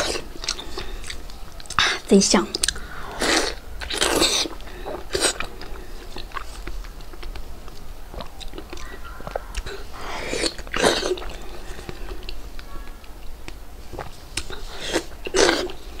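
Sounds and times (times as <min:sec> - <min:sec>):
wet chewing with mouth clicks: 0:00.0 - 0:16.0
loud bite into food: 0:02.6 - 0:05.5.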